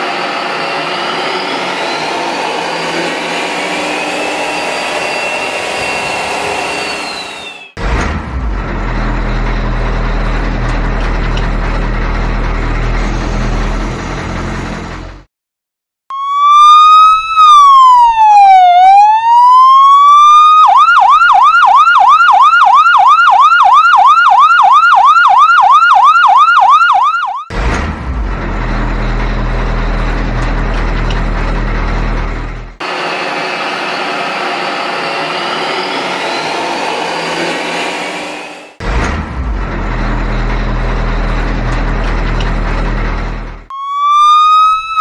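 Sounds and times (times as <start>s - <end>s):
electronic siren wailing and yelping: 16.1s - 27.5s, 43.7s - 45.0s.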